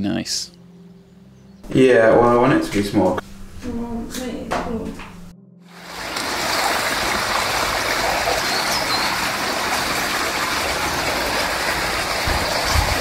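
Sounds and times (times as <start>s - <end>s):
stream flowing: 5.7s - 13.0s.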